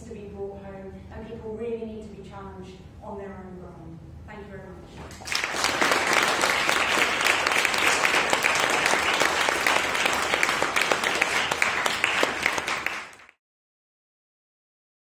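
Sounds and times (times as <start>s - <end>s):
audience applauding: 5.2s - 13.4s.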